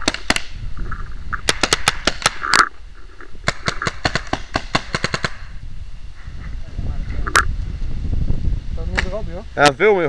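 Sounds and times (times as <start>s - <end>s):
paintball markers firing: 0.0s - 0.6s, 1.3s - 2.7s, 3.4s - 5.5s.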